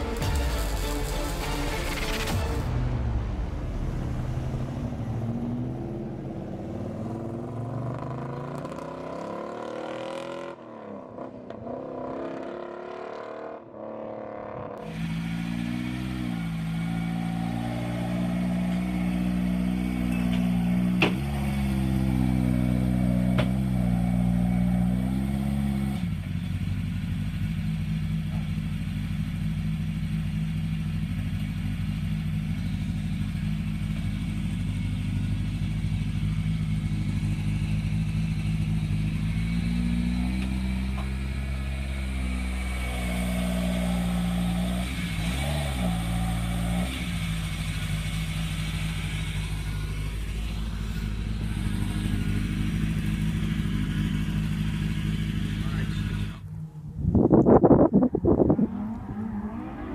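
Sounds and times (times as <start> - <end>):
car engine revving: 0.0 - 59.9
rally car engine idling with blips: 14.9 - 59.1.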